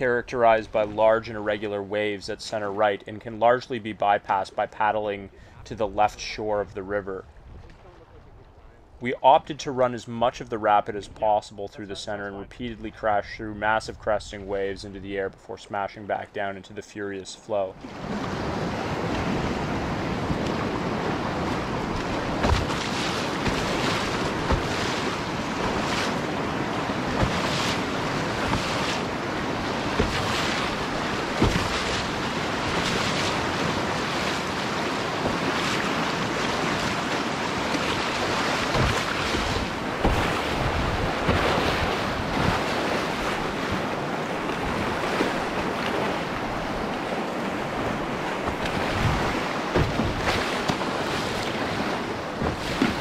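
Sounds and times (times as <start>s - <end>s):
boat splashing through waves: 17.6s - 53.0s
churning river water rushing: 17.6s - 53.0s
wind buffeting microphone: 17.9s - 53.0s.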